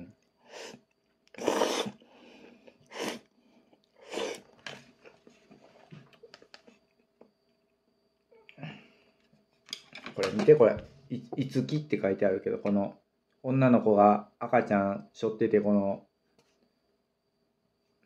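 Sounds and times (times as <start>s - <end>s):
noodles slurped: 0.5s - 2.0s, 4.0s - 4.5s.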